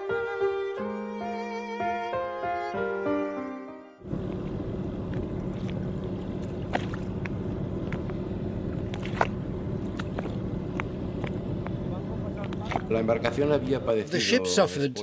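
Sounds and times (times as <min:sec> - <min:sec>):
boat engine running: 0:04.0 - 0:13.9.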